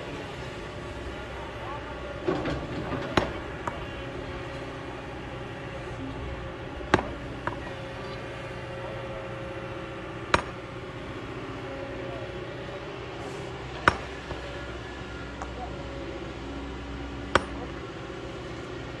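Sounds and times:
excavator engine running: 0:00.0 - 0:19.0.

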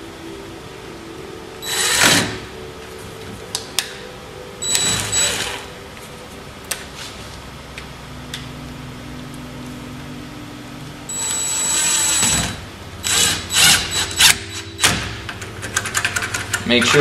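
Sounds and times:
impact driver bursts: 0:01.6 - 0:02.4, 0:11.1 - 0:15.0.

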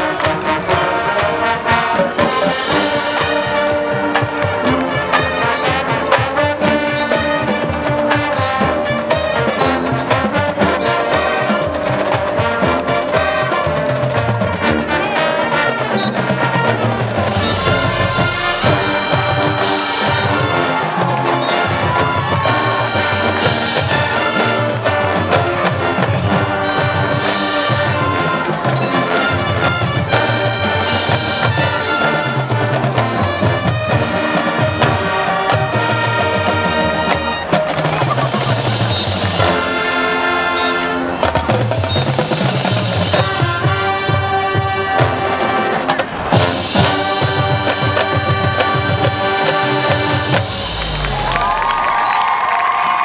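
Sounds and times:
drum and percussion beats: 0:00.0 - 0:53.0
marching band horns playing: 0:00.0 - 0:53.0.

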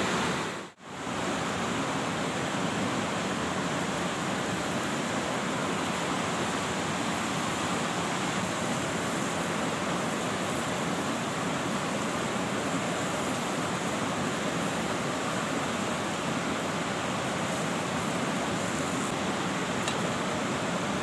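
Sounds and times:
gas stove burner hissing: 0:00.0 - 0:21.0.

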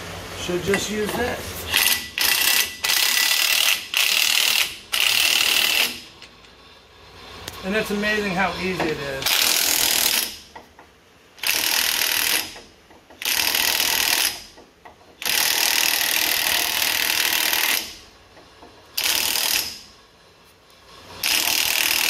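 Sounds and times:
impact wrench hammering: 0:00.7 - 0:06.2, 0:08.8 - 0:19.9, 0:21.2 - 0:22.0.

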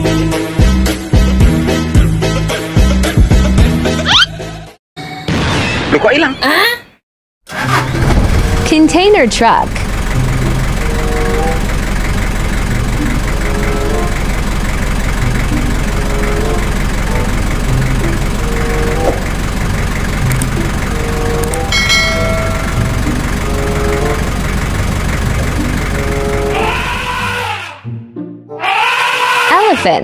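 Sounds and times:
truck engine rumbling: 0:07.5 - 0:27.8
short tones: 0:20.4 - 0:26.8.

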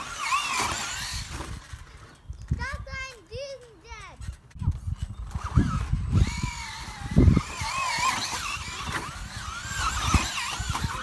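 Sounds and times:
rc truck motor whining: 0:00.0 - 0:02.6, 0:04.3 - 0:11.0.

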